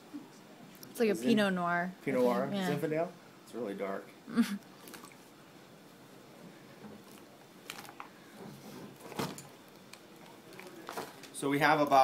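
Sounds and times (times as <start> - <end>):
plastic bag squeezed and crinkling: 7.0 - 11.4.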